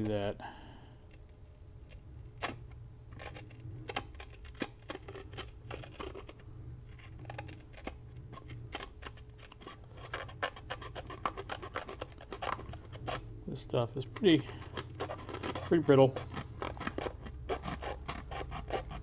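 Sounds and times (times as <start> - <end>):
steady low hum: 0.0 - 19.0
knife cutting brittle paper: 7.0 - 13.2, 14.2 - 19.0.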